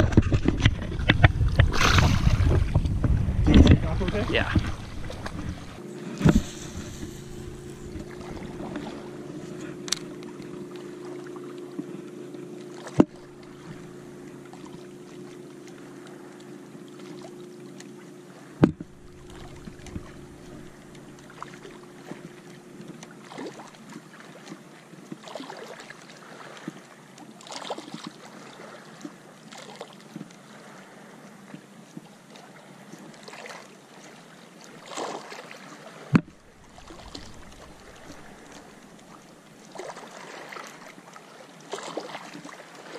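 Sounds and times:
wind noise: 0:00.0 - 0:09.6
low engine hum: 0:00.0 - 0:25.1, 0:36.2 - 0:41.0
water lapping: 0:00.0 - 0:42.9.

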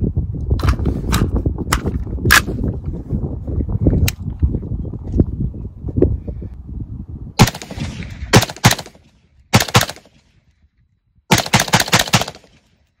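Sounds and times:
rifle shots: 0:07.4 - 0:10.3, 0:11.3 - 0:12.8.

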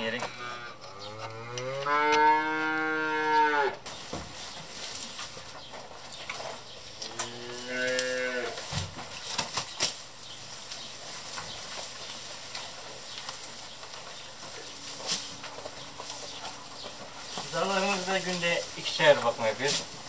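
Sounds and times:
calf mooing: 0:00.2 - 0:03.8, 0:07.1 - 0:08.6.

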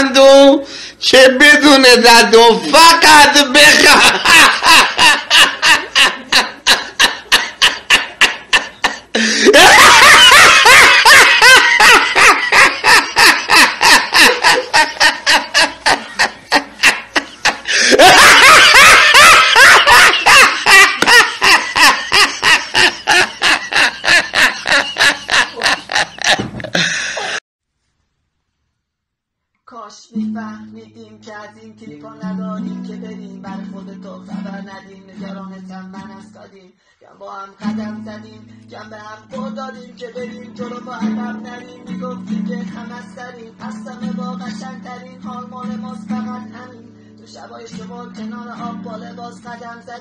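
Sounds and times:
man laughing uproariously: 0:02.4 - 0:27.4.

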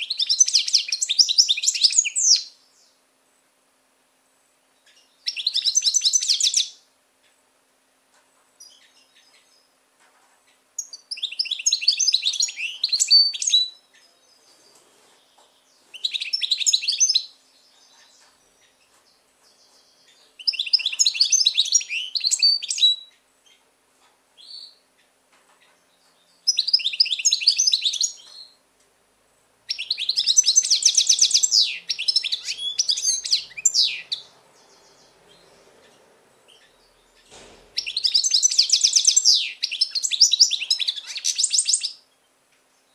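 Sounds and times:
goldfinch twittering song: 0:04.8 - 0:06.8, 0:10.8 - 0:23.6, 0:25.9 - 0:28.6, 0:29.7 - 0:42.2.

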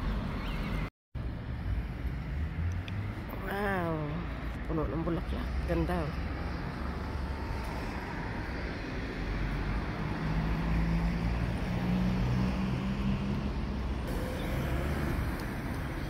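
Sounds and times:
steady traffic noise: 0:00.0 - 0:16.0
car passing close by: 0:09.2 - 0:16.0.

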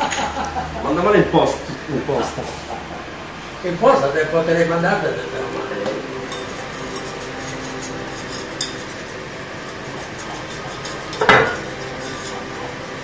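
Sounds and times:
utensil stirring thick sauce: 0:06.1 - 0:13.0.

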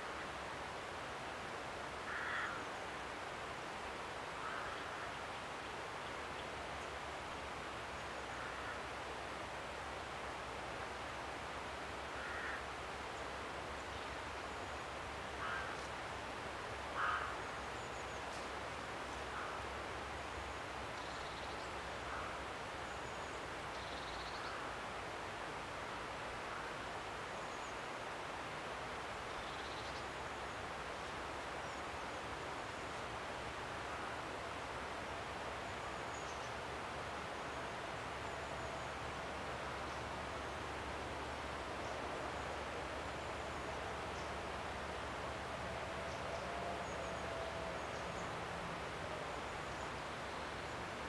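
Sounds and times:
outdoor hiss: 0:00.0 - 0:51.0
faint bird chirps: 0:21.0 - 0:22.3, 0:22.9 - 0:24.6, 0:29.3 - 0:30.2.

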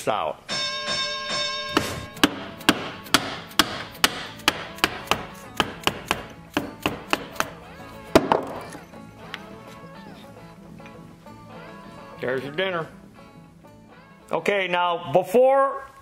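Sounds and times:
hammer tapping steel punch: 0:01.1 - 0:07.6.

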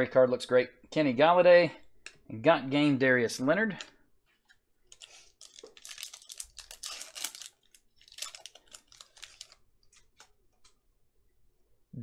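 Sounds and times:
foil wrapper crinkling and tearing: 0:04.9 - 0:10.4.

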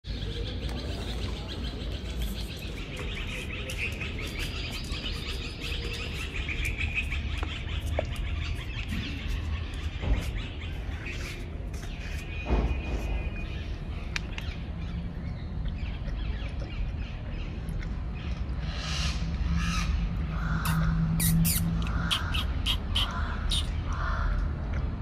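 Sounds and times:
small birds chirping: 0:00.0 - 0:24.4
low outdoor rumble: 0:00.1 - 0:25.0.

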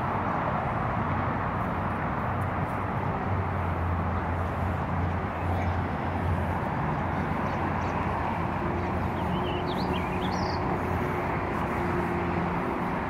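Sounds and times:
steady outdoor noise: 0:00.0 - 0:13.0
high bird chirps: 0:09.2 - 0:10.7.

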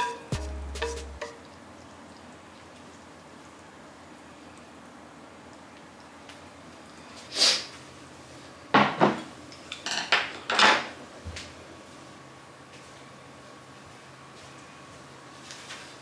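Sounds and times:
dishes and utensils clinking: 0:00.0 - 0:00.3.

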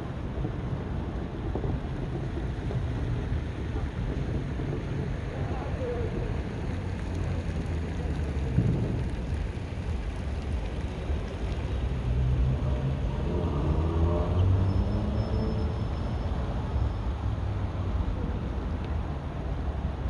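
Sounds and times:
wind on microphone: 0:00.0 - 0:14.6
traffic rumble: 0:00.0 - 0:20.0.

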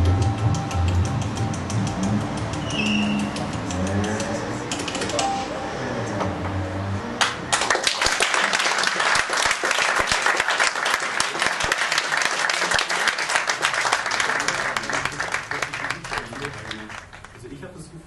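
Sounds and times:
audience applauding: 0:07.2 - 0:17.6.

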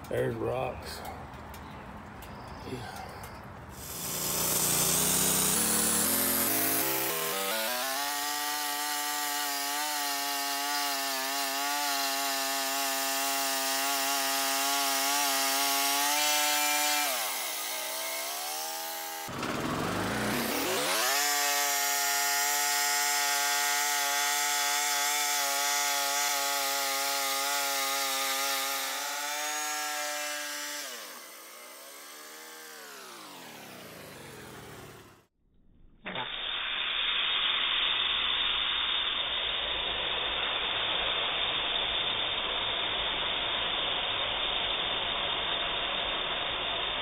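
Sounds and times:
band saw cutting log: 0:03.7 - 0:35.3
gasoline engine running: 0:19.3 - 0:20.4.

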